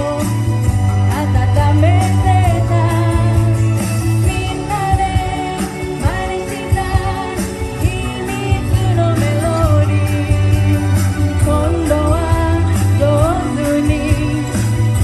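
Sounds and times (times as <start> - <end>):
pop-rock backing track: 0.0 - 15.0
woman singing: 0.0 - 15.0.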